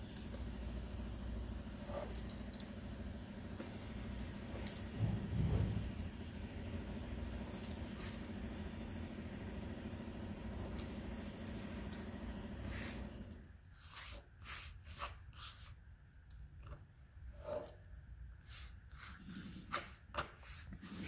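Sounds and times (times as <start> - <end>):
machine drone: 0.0 - 13.4
craft knife cutting leather: 12.6 - 15.8, 18.4 - 21.0.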